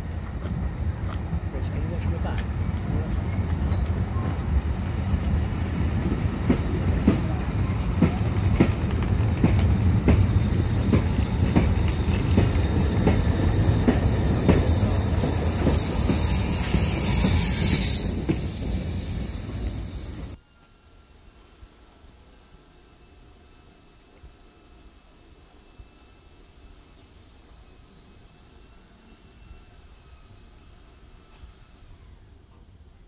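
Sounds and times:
train rumbling past: 0.0s - 33.0s
locomotive steam hiss: 0.1s - 20.4s
wheels clicking over rail joints: 5.2s - 7.4s.

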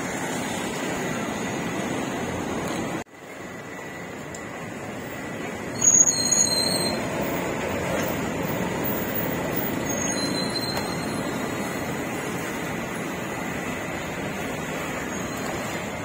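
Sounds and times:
street traffic rumble: 0.0s - 16.0s
high-pitched squeals: 5.6s - 8.0s, 8.6s - 12.4s.

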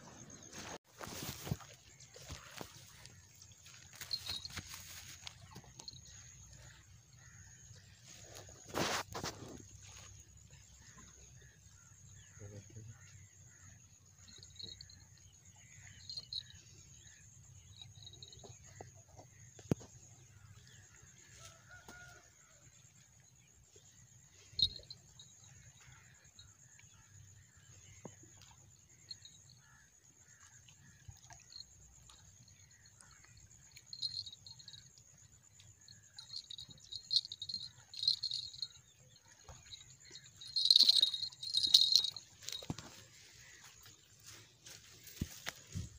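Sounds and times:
bite alarm bells jingling: 3.9s - 6.0s, 24.6s - 25.2s, 33.9s - 34.9s, 35.9s - 43.1s.

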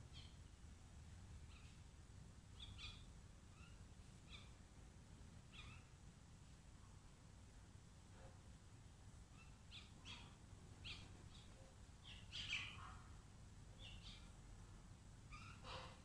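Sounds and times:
birds calling: 2.5s - 4.6s, 5.4s - 6.0s, 9.3s - 14.4s, 15.2s - 16.0s.

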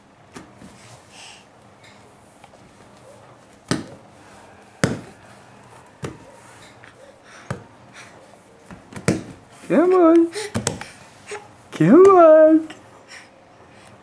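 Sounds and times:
baby's hands slapping foam mat: 3.6s - 4.0s, 4.8s - 5.2s, 8.7s - 9.4s, 10.5s - 11.0s.

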